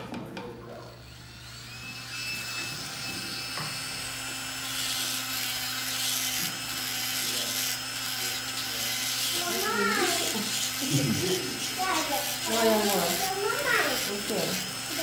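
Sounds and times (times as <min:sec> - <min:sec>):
electric nail drill whining: 0:00.7 - 0:15.0
burr grinding toenail: 0:01.0 - 0:15.0.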